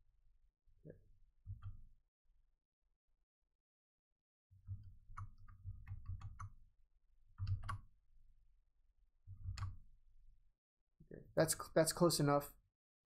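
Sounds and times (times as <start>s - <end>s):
mouse and keyboard clicks: 7.4s - 7.8s.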